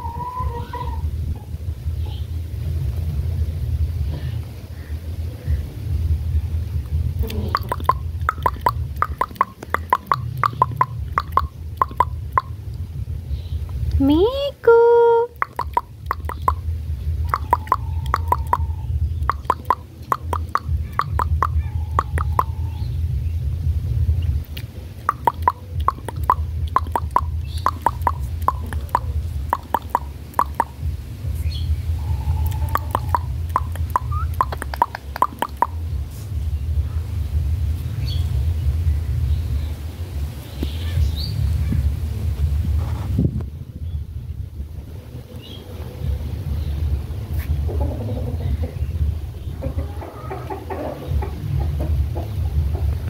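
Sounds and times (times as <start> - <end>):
low rumble: 0.0 - 14.7, 15.3 - 53.0
parakeet clicking chirps: 7.5 - 12.8, 15.4 - 16.6, 17.3 - 22.6, 24.5 - 30.8, 32.4 - 35.8.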